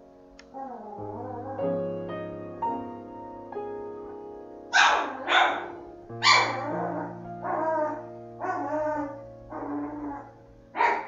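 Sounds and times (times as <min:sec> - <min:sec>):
background music with sustained notes: 0:00.0 - 0:11.0
dog barking: 0:04.7 - 0:07.6, 0:10.8 - 0:11.0.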